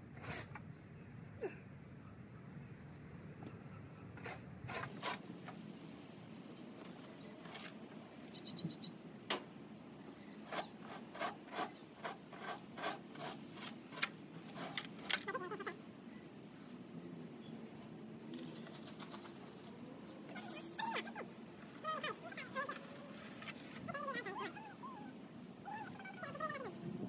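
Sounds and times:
rakes scraping through dry leaves: 20.0s - 24.3s.

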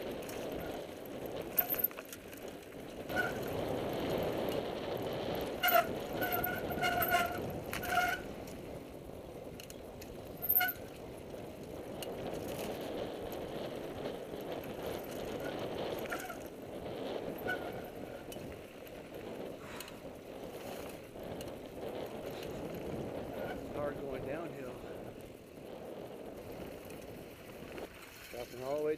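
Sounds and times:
bike frame and chain rattle: 0.0s - 28.9s
bike tyres rumbling on dirt: 0.0s - 28.9s
high-pitched brake squeals: 3.1s - 3.5s, 5.6s - 8.2s, 17.4s - 18.0s.

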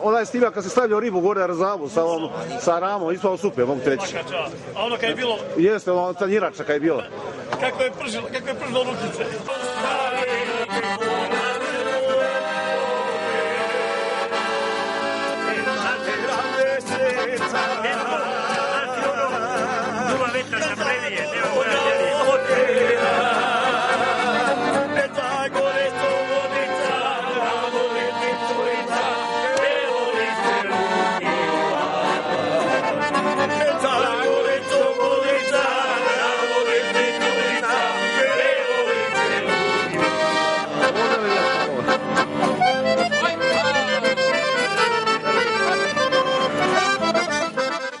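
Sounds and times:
accordion playing folk tune: 7.8s - 48.0s
men singing loudly: 9.0s - 40.8s.

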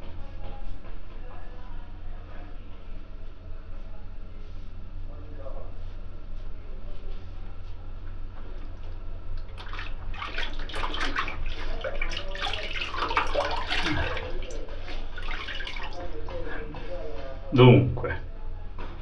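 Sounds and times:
tap water running into basin: 8.6s - 16.3s
water splashing face rinse: 8.6s - 16.3s.

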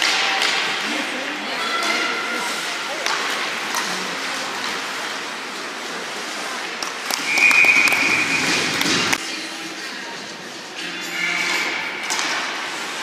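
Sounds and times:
crowd noise in ice arena: 0.0s - 13.0s
referee's whistle: 7.2s - 8.6s.

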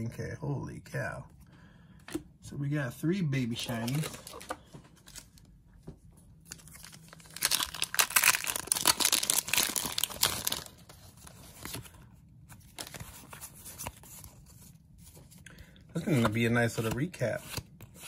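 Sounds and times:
foil wrapper tearing and crinkling: 6.5s - 10.8s.

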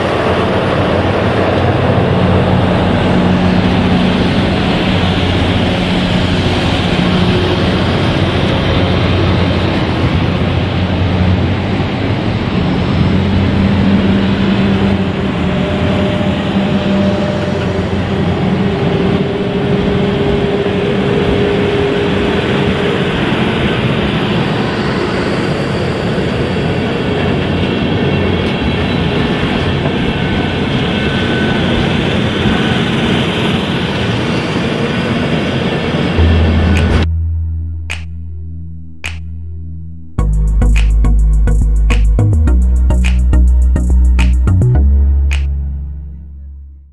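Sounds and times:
train wheels rumbling on rails: 0.0s - 37.1s
music: 36.2s - 46.9s.

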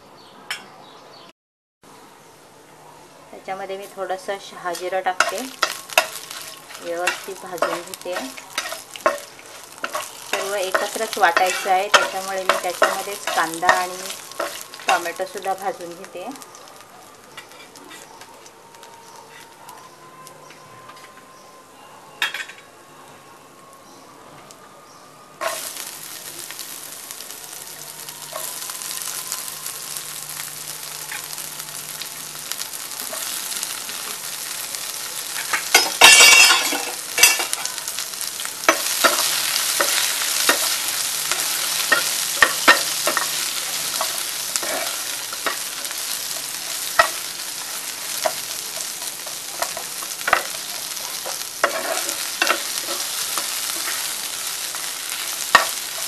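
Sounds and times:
oil sizzling in a frying pan: 3.4s - 19.6s, 25.4s - 56.0s
spatula scraping a pan: 4.7s - 15.0s, 38.7s - 54.4s.

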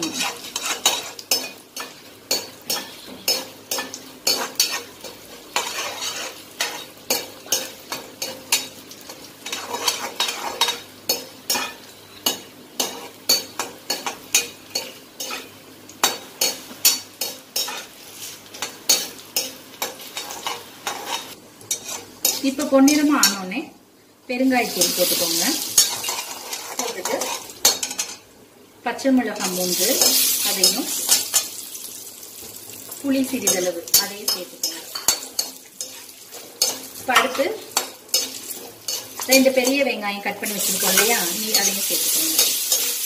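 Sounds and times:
metal spoon scraping and tapping pot: 0.0s - 17.9s, 25.8s - 28.2s, 33.3s - 39.9s
sizzling oil: 0.0s - 43.0s.

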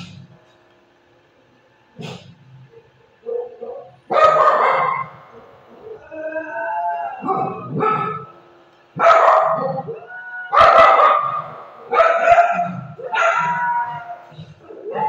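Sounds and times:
dog howling and barking: 2.7s - 8.4s, 9.0s - 15.0s.

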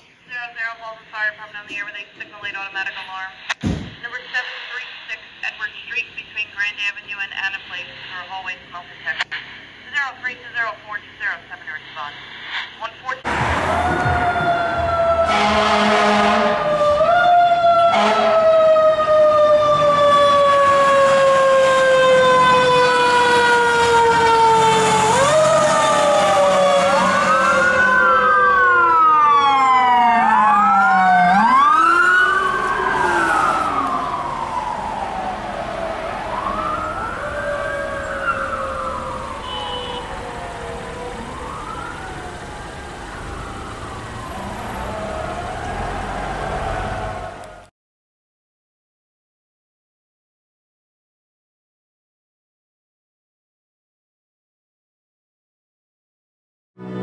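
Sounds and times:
fire engine sirens wailing: 13.2s - 47.7s.

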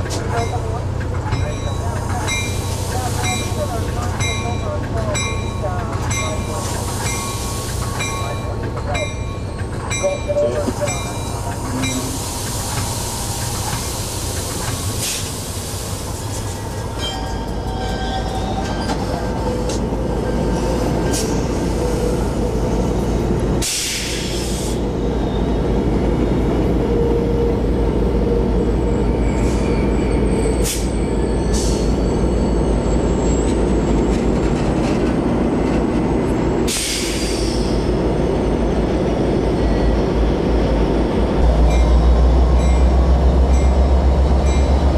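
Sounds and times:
locomotive cab engine noise: 0.0s - 44.9s
train wheels rumbling on rails: 0.0s - 44.9s
high wheel squeal: 9.3s - 19.6s, 28.6s - 33.8s
low diesel engine drone: 39.9s - 44.9s.

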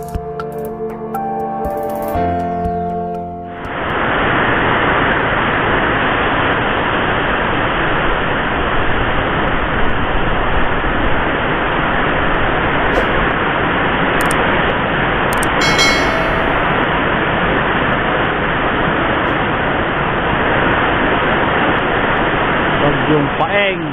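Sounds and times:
heavy rain: 3.7s - 14.2s, 18.2s - 23.3s
strong wind: 3.7s - 17.5s.

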